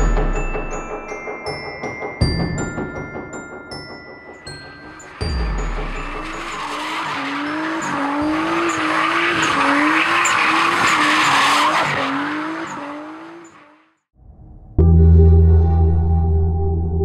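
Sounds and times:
turbocharged car engine revving: 4.8 - 14.0
tyres screeching: 6.0 - 13.7.

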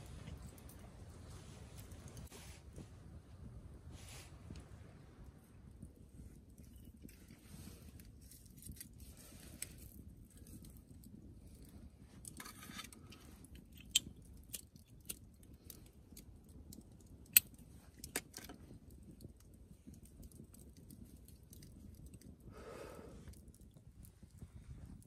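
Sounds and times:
low steady rumble: 0.0 - 14.4
campfire crackling and popping: 0.0 - 25.0.

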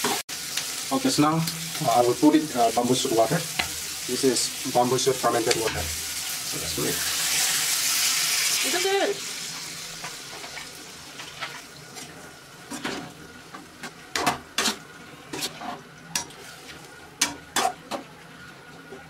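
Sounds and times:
faint sizzle: 0.0 - 19.0
metal spatula scraping a pan: 14.1 - 17.9.

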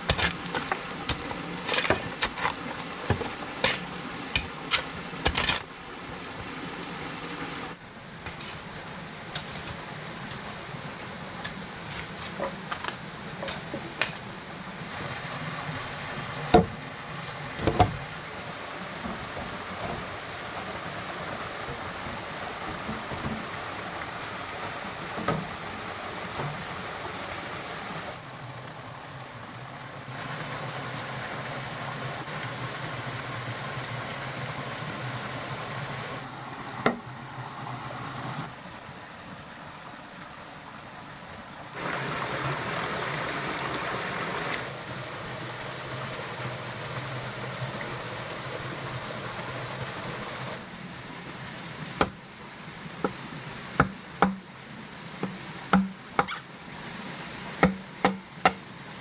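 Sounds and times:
stream flowing: 0.0 - 59.0
blade chopping bamboo: 53.8 - 54.4, 55.2 - 56.4, 57.6 - 58.6.

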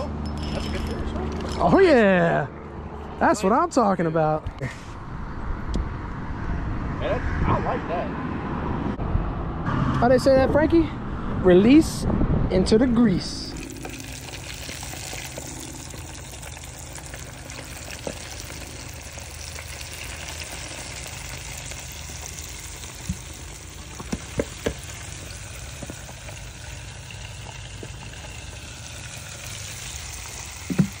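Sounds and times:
oil sizzling in a deep fryer: 13.6 - 31.0.

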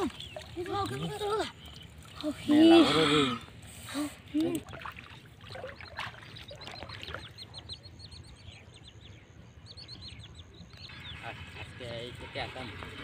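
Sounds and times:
bird chirping: 0.0 - 2.5, 5.5 - 13.0.

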